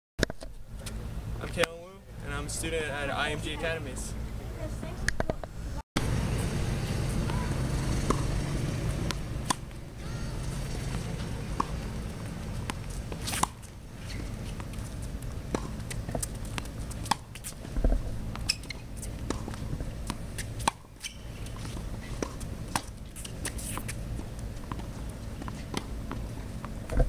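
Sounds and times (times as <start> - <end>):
tennis ball hit and bouncing: 7.1 - 27.0.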